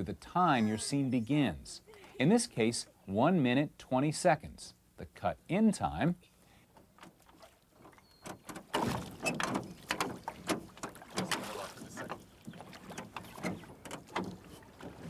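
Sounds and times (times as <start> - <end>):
oars splashing water: 6.6 - 15.0
oars knocking in oarlocks: 6.9 - 15.0.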